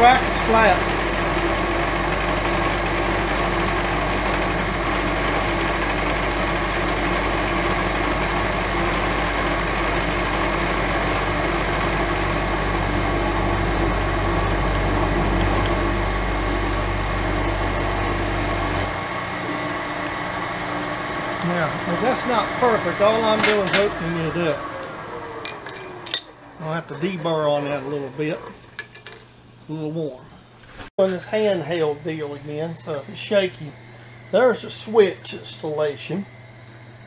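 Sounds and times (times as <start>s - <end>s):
machine whining tones: 0.0s - 28.8s
milling machine running: 0.0s - 29.2s, 31.0s - 37.0s.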